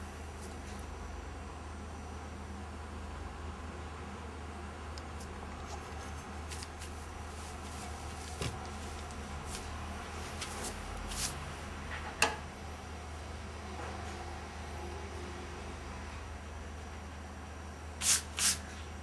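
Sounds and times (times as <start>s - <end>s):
steady low hum: 0.0s - 19.0s
even hiss: 18.0s - 18.6s.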